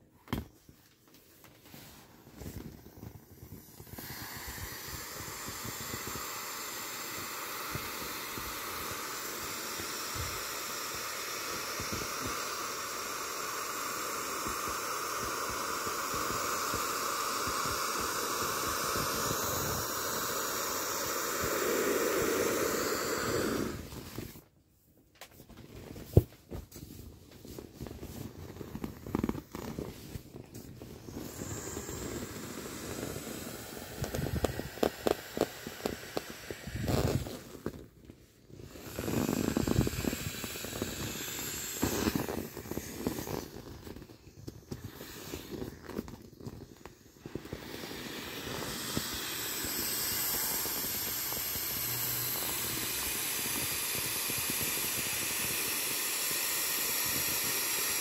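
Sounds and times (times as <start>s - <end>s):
vinyl rustling and crinkling: 0.0s - 3.5s, 23.9s - 31.0s
air hissing from valve: 1.7s - 24.4s, 28.2s - 37.9s, 38.5s - 58.0s.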